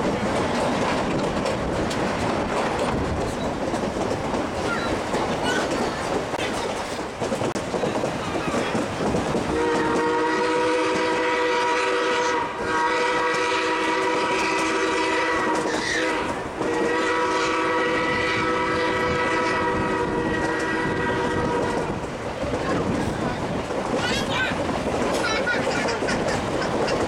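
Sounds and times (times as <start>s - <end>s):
train cars clattering on rails: 0.0s - 27.0s
steam locomotive chime whistle: 9.6s - 21.7s.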